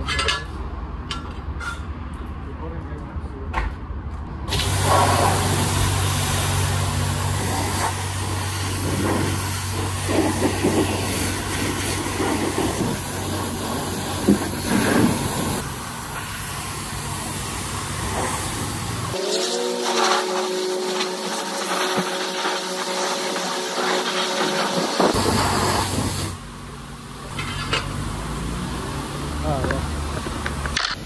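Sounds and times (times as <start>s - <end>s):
high-pressure water spray hiss: 4.5s - 26.4s.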